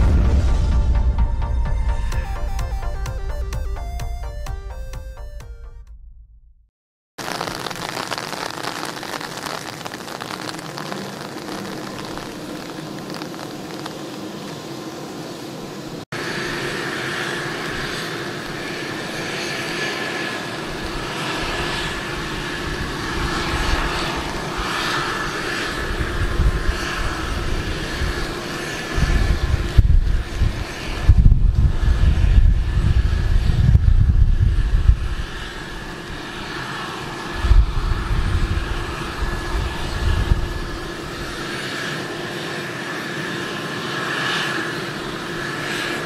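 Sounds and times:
low gusty rumble: 0.0s - 4.7s, 20.8s - 41.5s
helicopter turbine whine: 0.0s - 5.8s, 9.7s - 46.0s
higher turbine whine: 0.0s - 6.3s, 7.2s - 46.0s.

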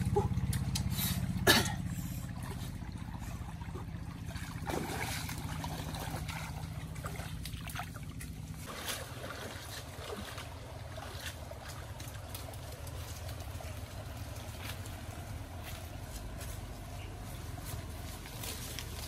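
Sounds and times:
low steady hum: 0.0s - 19.0s
stream water trickling and splashing: 0.0s - 19.0s.

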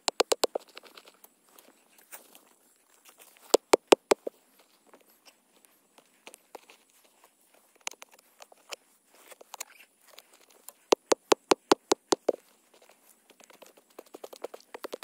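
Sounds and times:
hand pick chopping soil: 0.0s - 0.9s, 3.4s - 4.3s, 10.7s - 15.0s.

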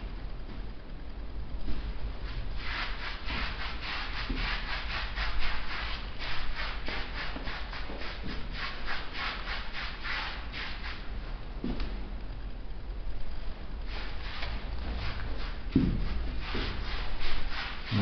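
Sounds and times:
gritty rubbing of paint on a wall: 1.7s - 11.2s, 13.8s - 18.0s.

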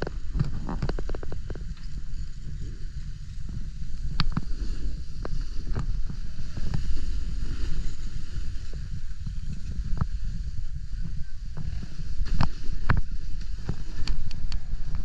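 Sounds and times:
skis sliding on snow: 0.0s - 15.0s
wind rumbling on microphone: 0.0s - 15.0s.

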